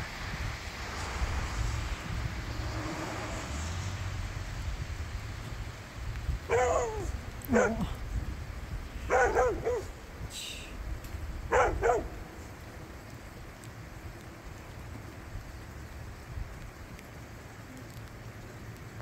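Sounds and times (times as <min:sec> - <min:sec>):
steady low rumble: 0:00.0 - 0:19.0
dog barking: 0:06.5 - 0:08.0, 0:09.1 - 0:10.0, 0:11.5 - 0:12.2.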